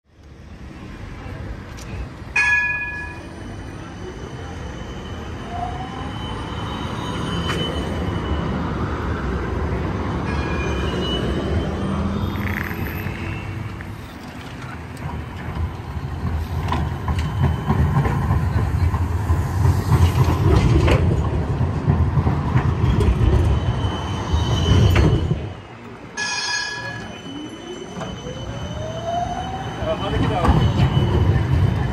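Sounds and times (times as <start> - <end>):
street noise: 0.0 - 31.9
tram wheels rumbling on rail: 0.2 - 31.9
tram bell ringing: 2.3 - 9.0, 10.1 - 13.8, 26.1 - 31.9
wheel squeal: 3.2 - 8.8, 10.3 - 14.4, 16.4 - 18.5, 22.8 - 25.5, 26.2 - 31.9.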